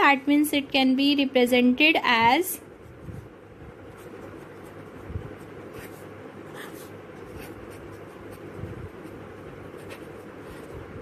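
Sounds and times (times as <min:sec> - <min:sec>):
low background hum: 0:00.0 - 0:11.0
pen scratching on paper: 0:02.8 - 0:11.0.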